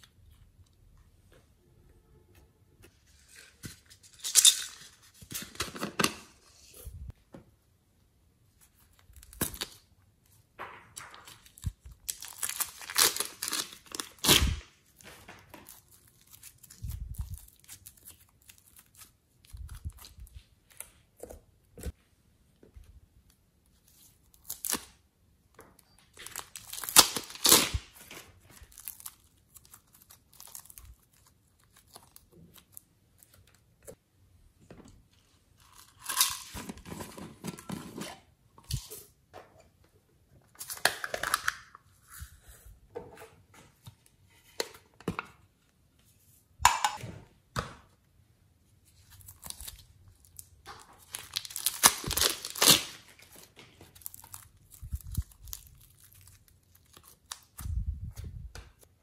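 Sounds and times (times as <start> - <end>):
plastic wrapping crinkling and tearing: 11.2 - 20.4, 26.1 - 33.6, 49.0 - 58.2.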